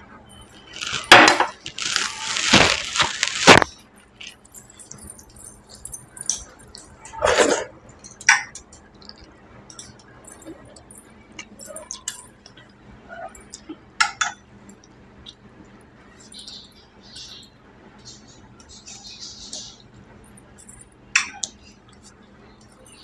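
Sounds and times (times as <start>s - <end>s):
dishware clinking: 0.3s - 8.7s.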